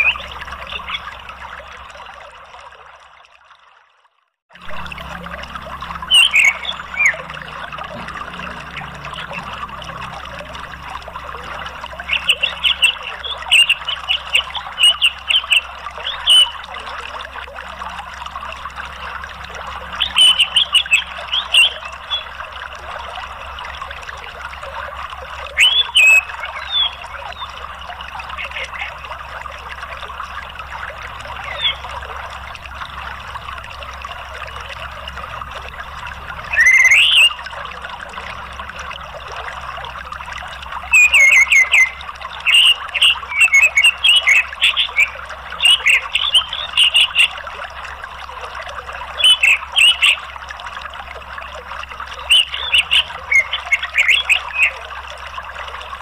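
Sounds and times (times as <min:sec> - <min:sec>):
bird chirping calls: 0:00.0 - 0:01.3, 0:05.9 - 0:09.7, 0:11.4 - 0:16.7, 0:19.9 - 0:22.4, 0:25.5 - 0:27.6, 0:28.2 - 0:29.1, 0:31.2 - 0:32.0, 0:36.4 - 0:37.5, 0:40.9 - 0:47.4, 0:49.2 - 0:50.2, 0:52.2 - 0:54.8
running water: 0:00.0 - 0:56.0.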